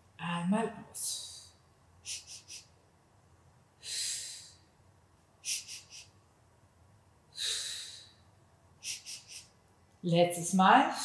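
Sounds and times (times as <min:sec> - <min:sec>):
woman breathing rhythmically: 0:01.2 - 0:02.8, 0:03.7 - 0:06.3, 0:07.2 - 0:09.8.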